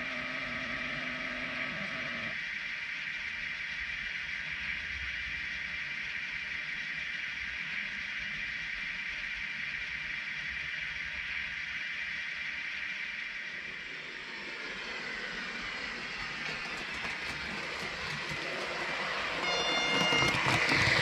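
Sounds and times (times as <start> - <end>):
model trains running on track: 0.0 - 21.0
digital train horn blast: 19.2 - 21.0.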